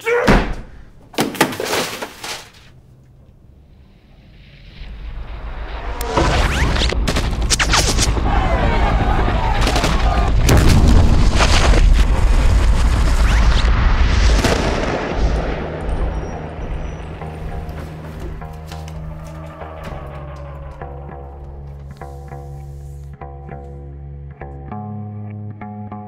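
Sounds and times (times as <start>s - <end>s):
deep rumble: 2.7s - 21.7s
rush of noise: 3.5s - 17.1s
sharp cracks: 5.8s - 8.3s.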